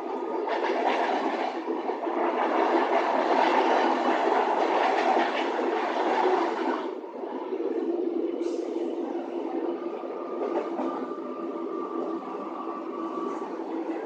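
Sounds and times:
train wheels rumbling on rails: 0.0 - 14.0
faint rail-joint clicks: 10.4 - 11.2.

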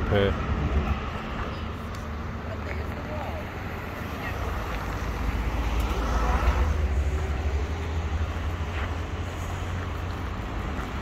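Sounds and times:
car passing: 0.0 - 11.0
low rumble of city traffic: 0.0 - 11.0.

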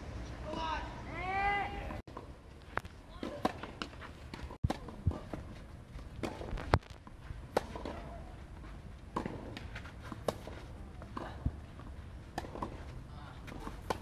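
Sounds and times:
tennis ball bouncing: 3.2 - 5.5, 6.1 - 8.2, 9.1 - 14.0
tennis rackets striking ball: 3.2 - 5.5, 6.2 - 8.2, 9.1 - 11.6, 12.3 - 14.0.

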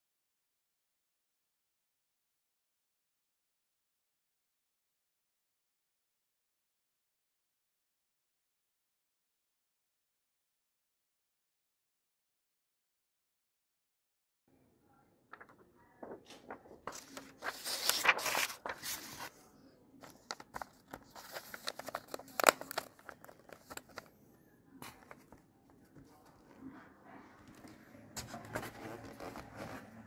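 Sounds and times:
paper and tape crinkling and tearing: 15.3 - 19.3, 20.0 - 24.1.

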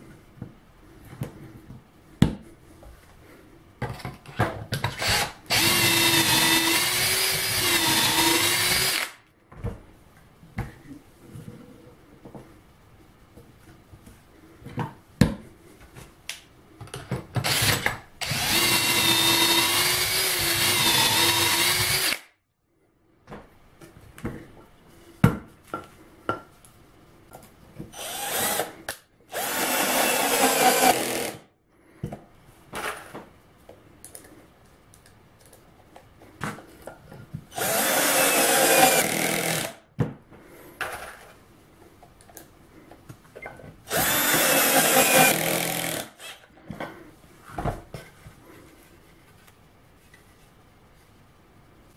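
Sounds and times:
cordless drill boring into plywood: 5.0 - 9.2, 17.4 - 22.3, 28.0 - 28.7, 29.3 - 31.4, 37.5 - 39.8, 43.9 - 46.4.

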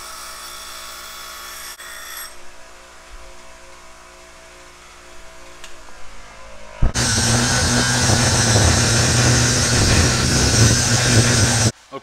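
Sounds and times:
angle grinder grinding steel: 6.7 - 11.7
bench grinder humming: 6.8 - 11.7.

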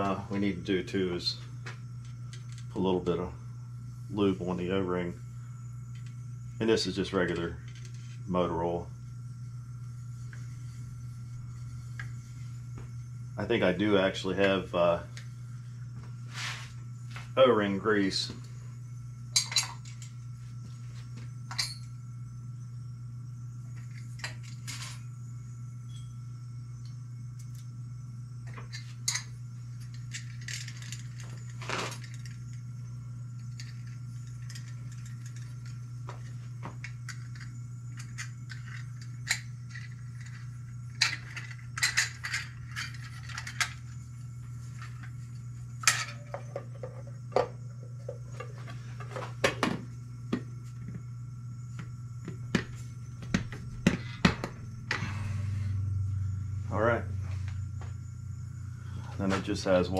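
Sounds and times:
steady low hum: 0.0 - 59.9
metal parts and tools clinking: 19.4 - 20.1, 29.9 - 32.4, 41.0 - 43.8, 45.8 - 47.0.

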